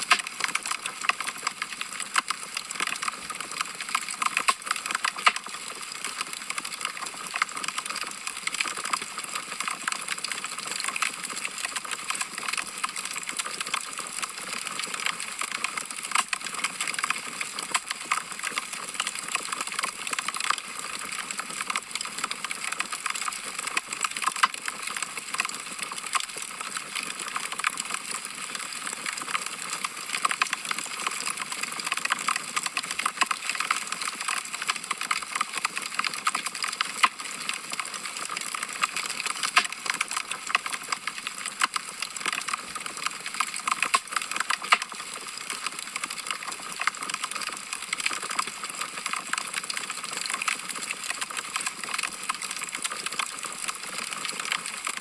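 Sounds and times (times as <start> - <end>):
log fire crackling: 3.9 - 5.9.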